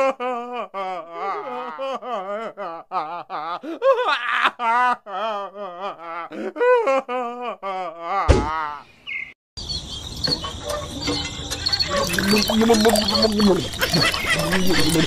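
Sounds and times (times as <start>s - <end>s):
high bird chirps: 8.9s - 15.0s.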